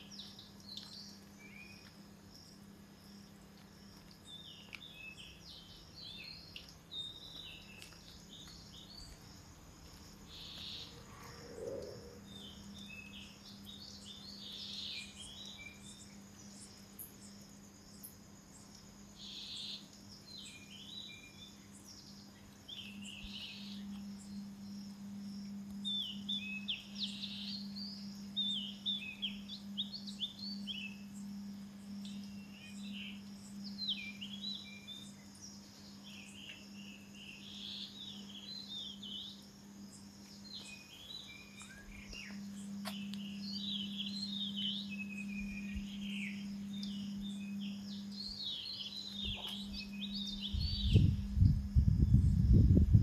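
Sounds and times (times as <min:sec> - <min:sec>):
high insect buzz: 0:00.0 - 0:53.0
low hum: 0:21.8 - 0:37.3, 0:39.2 - 0:53.0.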